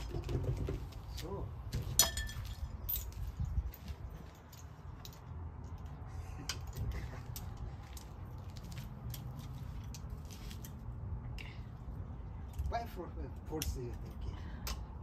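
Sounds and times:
steady low rumble: 0.8 - 15.0
tools clicking and clinking: 1.8 - 10.8.

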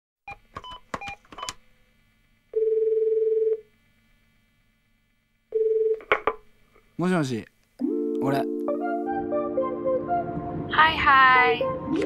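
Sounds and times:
telephone keypad beeps: 0.3 - 1.6.

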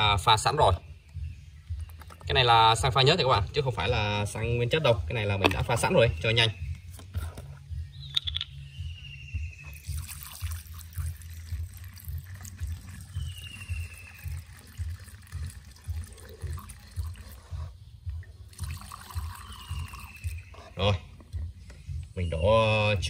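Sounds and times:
fuel trickling through funnel: 9.6 - 22.0.

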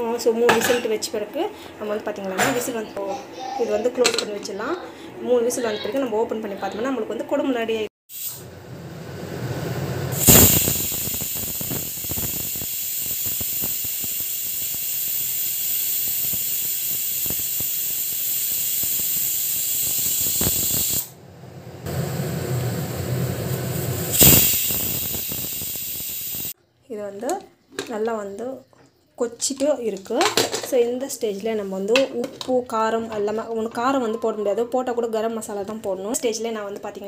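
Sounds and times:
pressure cooker whistling: 10.1 - 21.1, 21.9 - 26.6.

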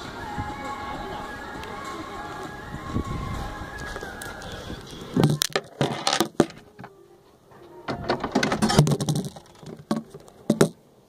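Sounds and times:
handling clicks and rattles: 5.2 - 10.8.

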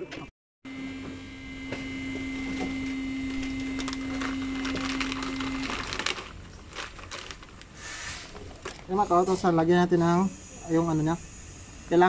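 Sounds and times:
electric machine hum: 0.0 - 7.8, 8.4 - 12.0
plastic bag crinkling: 3.3 - 8.9.

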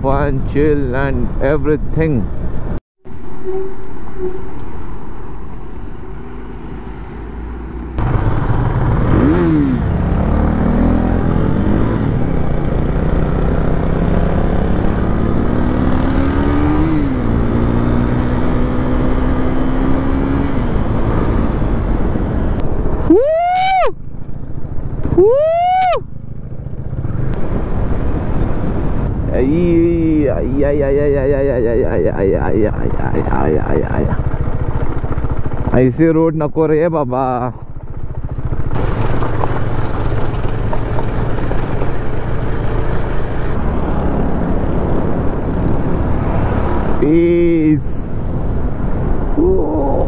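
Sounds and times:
motorcycle engine shifting gears: 7.8 - 23.0, 32.8 - 35.8, 37.7 - 47.1.

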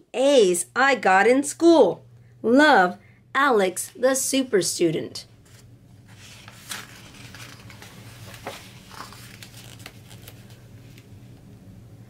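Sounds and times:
book pages turning: 5.4 - 11.1.

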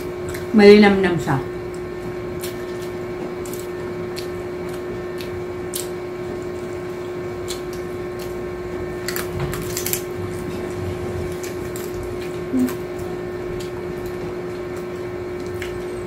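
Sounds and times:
background hum: 0.0 - 16.0
chewing clicks: 1.7 - 6.8, 7.4 - 10.0
taco shell crunching: 1.7 - 16.0.

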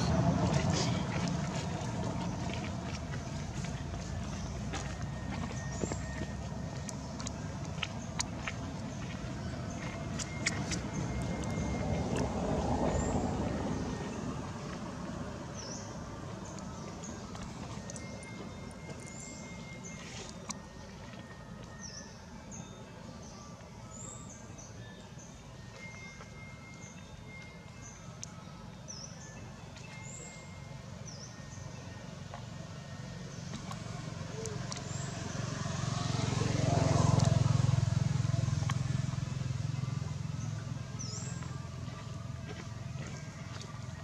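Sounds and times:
vehicle engine passing by: 0.0 - 22.0, 32.1 - 44.0.

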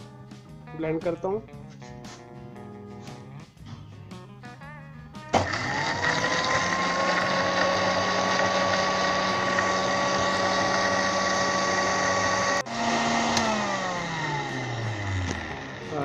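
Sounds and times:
blender motor whining: 5.3 - 16.0.

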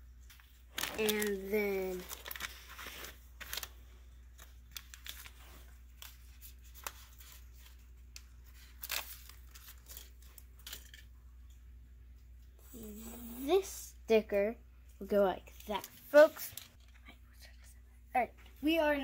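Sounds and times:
sticker sheet crinkling and peeling: 0.3 - 11.0.

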